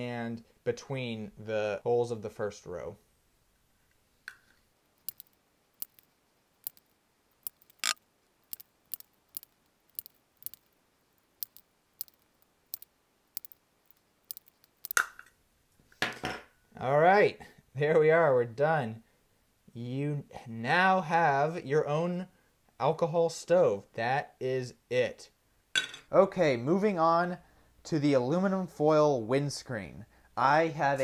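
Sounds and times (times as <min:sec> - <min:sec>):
handling noise: 0:04.3 - 0:15.3.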